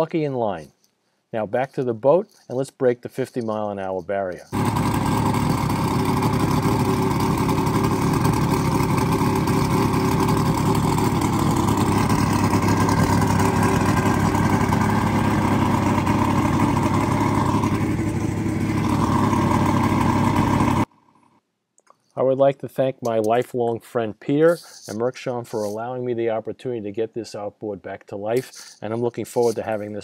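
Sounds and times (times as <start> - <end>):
outboard motor running: 4.5 - 20.9.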